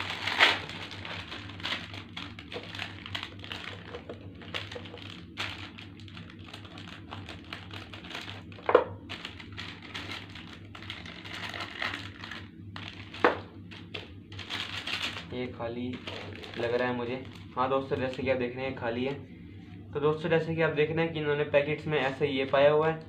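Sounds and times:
plastic snack pouch crinkling: 0:00.0 - 0:18.2.

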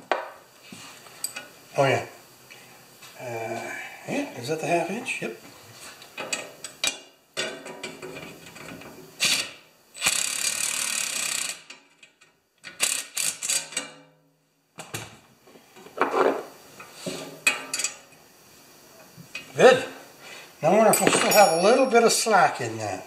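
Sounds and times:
ratcheting wrench clicking: 0:09.2 - 0:13.9.

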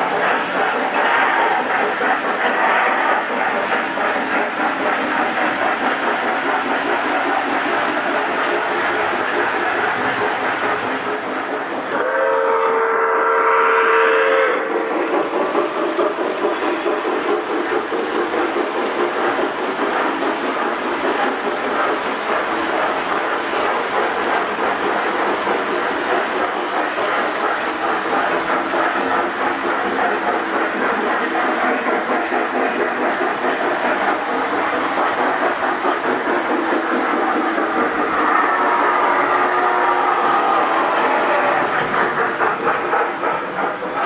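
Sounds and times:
train whistle: 0:11.9 - 0:14.7, 0:38.2 - 0:41.5
model train wheels rattling: 0:14.7 - 0:44.0.

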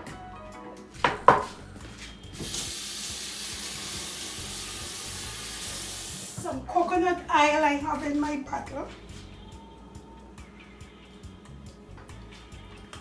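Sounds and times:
kitchen tap running: 0:02.4 - 0:06.5.

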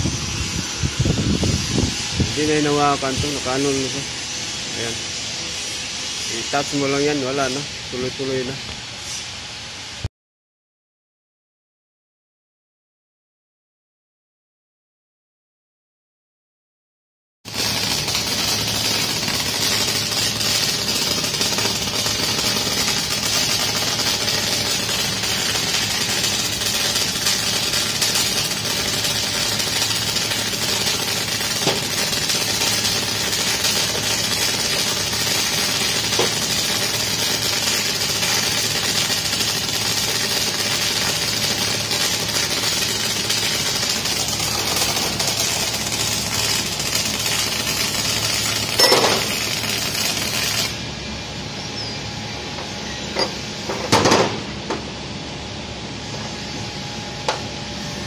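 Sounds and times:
arc welding crackling: 0:00.0 - 0:08.8, 0:17.5 - 0:51.4.

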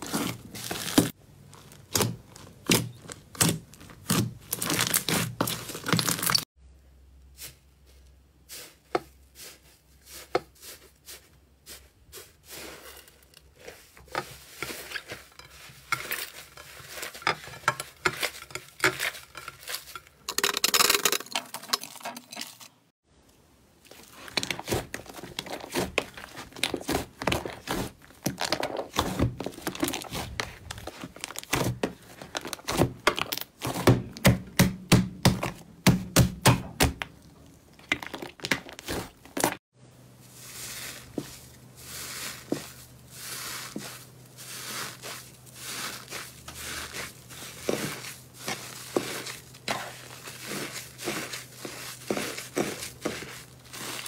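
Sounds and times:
slime crackling and tearing: 0:00.0 - 0:06.4
slime popping and squelching: 0:00.0 - 0:06.4.

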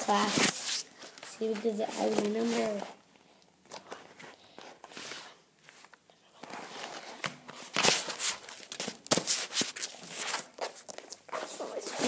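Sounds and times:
plastic folders rustling and scraping: 0:00.0 - 0:03.0, 0:03.7 - 0:12.0
sharp slaps of folders: 0:07.2 - 0:09.8.

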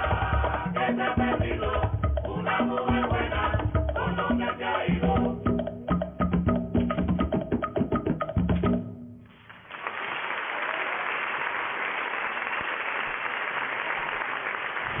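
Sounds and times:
percussion-driven dance music: 0:00.0 - 0:09.2
audience applause: 0:09.5 - 0:15.0.

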